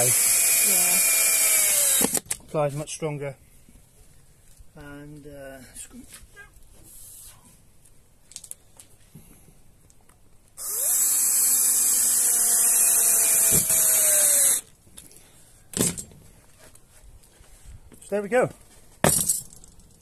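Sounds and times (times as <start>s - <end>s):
drill driving screw into board: 0.0s - 2.4s, 10.6s - 14.7s.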